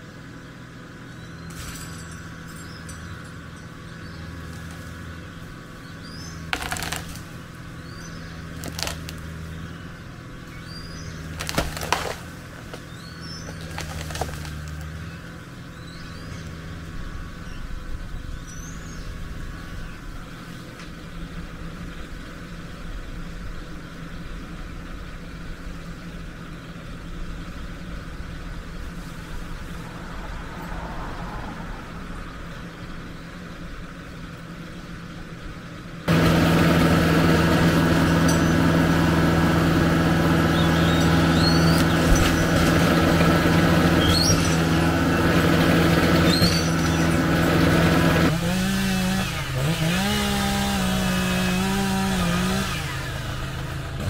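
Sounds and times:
birds chirping: 0.0s - 52.6s
tractor diesel engine running: 0.0s - 54.0s
wood cracking: 6.4s - 7.5s, 8.4s - 9.5s, 11.2s - 15.0s, 36.1s - 48.4s.

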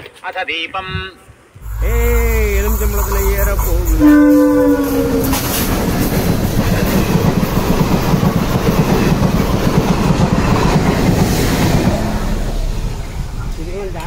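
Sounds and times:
train horn: 1.6s - 6.0s
train rumbling past: 1.6s - 14.0s
wheels clacking on rails: 1.6s - 14.0s.

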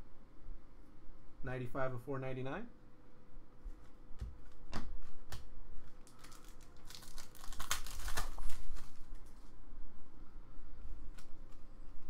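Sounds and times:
plastic wrapper crinkling and tearing: 5.8s - 9.5s.

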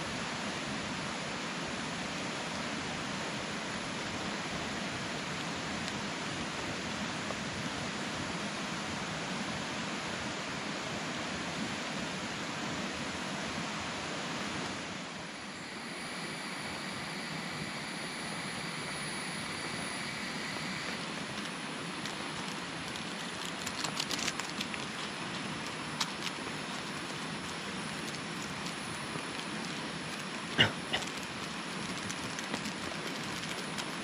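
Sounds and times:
faint high steady tones: 14.0s - 23.6s
rain falling on tarps: 14.4s - 34.0s.

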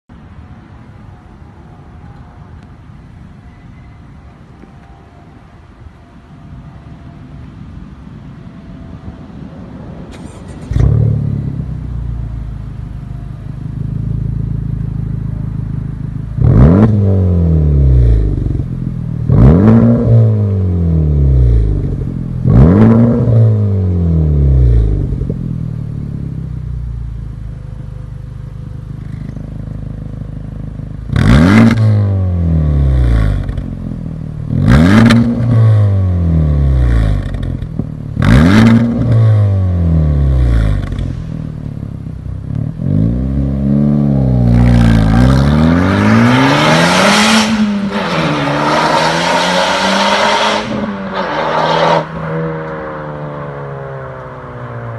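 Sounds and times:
car engine idling: 10.1s - 19.3s, 24.0s - 34.7s, 36.2s - 46.5s
car engine revving: 10.1s - 54.9s.

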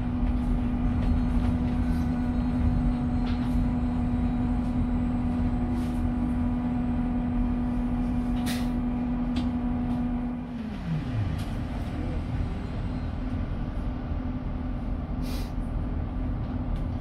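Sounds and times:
low road rumble: 0.0s - 17.0s.

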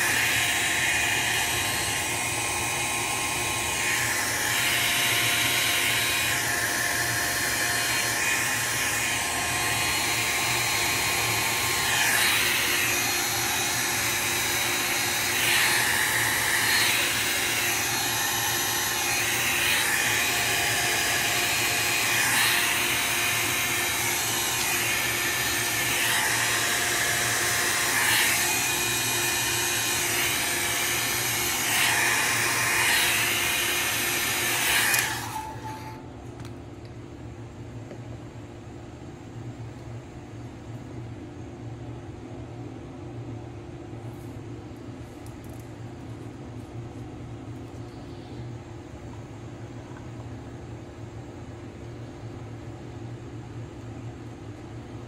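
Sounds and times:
heat gun blowing air: 0.0s - 36.0s.

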